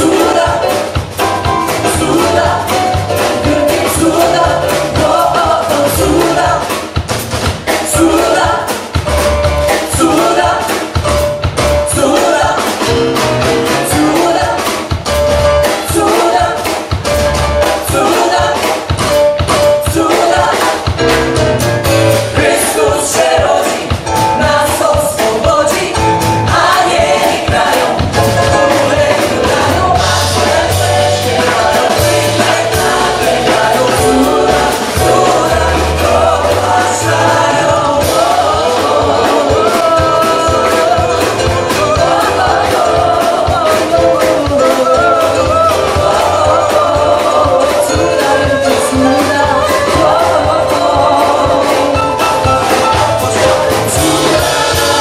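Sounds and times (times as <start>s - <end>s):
choir singing: 0.0s - 7.0s, 7.6s - 9.0s, 9.6s - 11.0s, 11.7s - 15.0s, 15.6s - 55.0s
drum kit beat: 0.0s - 55.0s
electric bass guitar: 9.0s - 10.0s, 21.0s - 22.6s, 28.0s - 43.2s.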